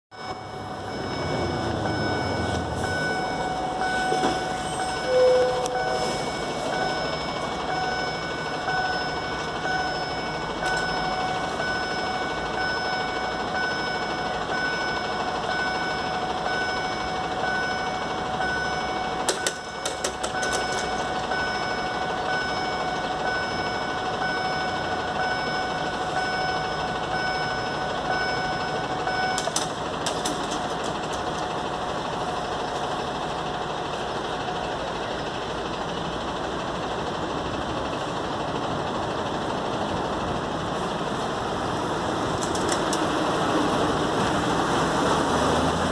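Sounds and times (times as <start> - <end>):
level crossing warning beeps: 0.1 - 31.6.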